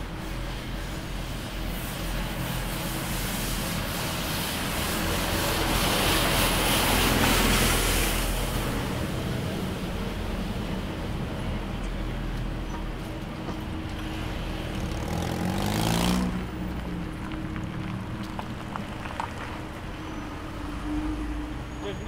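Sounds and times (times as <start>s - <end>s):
traffic hum: 0.0s - 22.0s
vehicle passing close by: 14.0s - 21.8s.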